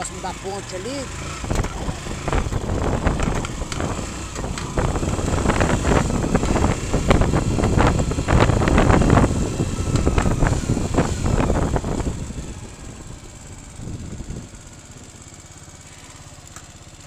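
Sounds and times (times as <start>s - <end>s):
motorcycle engine running: 0.0s - 17.0s
wind buffeting microphone: 1.4s - 14.6s.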